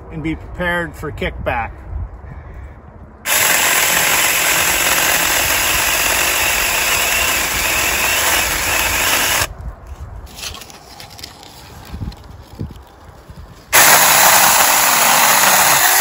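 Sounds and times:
mini chainsaw cutting branch: 0:03.3 - 0:09.5, 0:13.7 - 0:16.0.

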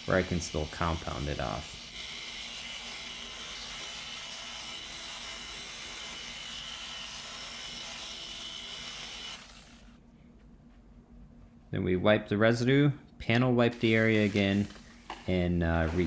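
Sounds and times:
electric polisher hum and whine: 0:00.0 - 0:10.0.

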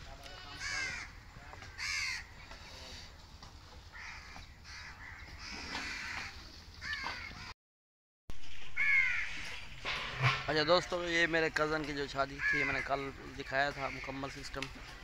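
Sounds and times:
crows cawing: 0:00.4 - 0:02.7, 0:03.8 - 0:07.5, 0:08.7 - 0:09.7, 0:12.2 - 0:14.6.

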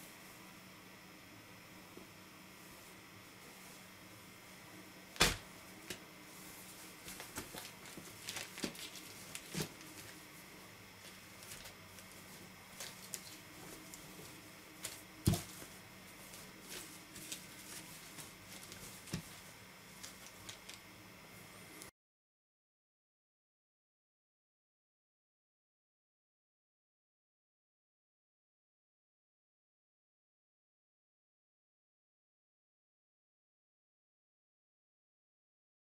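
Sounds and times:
faint steady hum: 0:00.0 - 0:21.9
shirt and plastic rustling: 0:05.2 - 0:10.3, 0:11.0 - 0:20.8.

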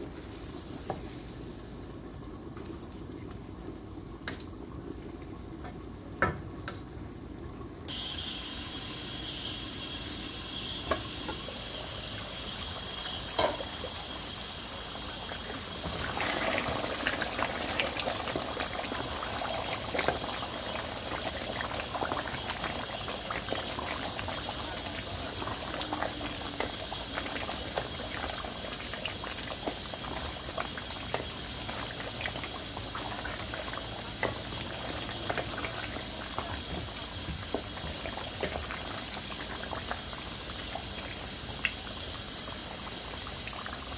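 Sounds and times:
curry bubbling in a metal pot: 0:00.0 - 0:43.9.

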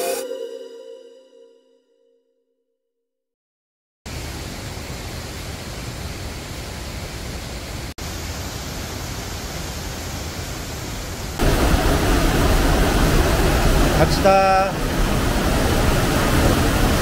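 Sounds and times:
mountain stream rushing: 0:04.1 - 0:17.0.

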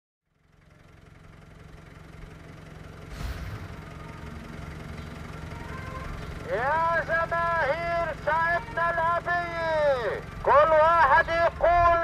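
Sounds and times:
engine running: 0:00.3 - 0:12.0
brief thump: 0:03.1 - 0:03.7.

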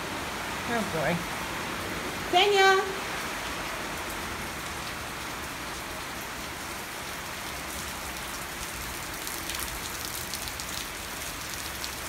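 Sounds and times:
heavy rain hissing: 0:00.0 - 0:12.0.

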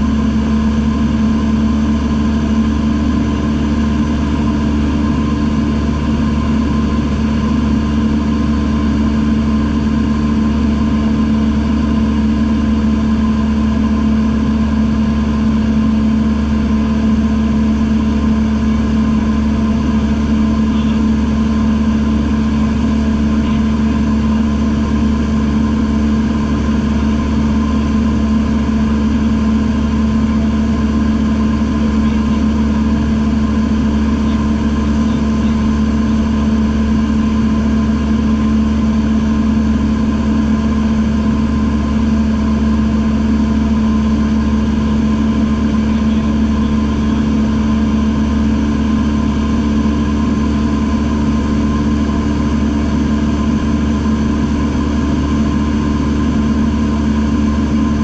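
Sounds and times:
light airplane engine drone: 0:00.0 - 0:58.0.

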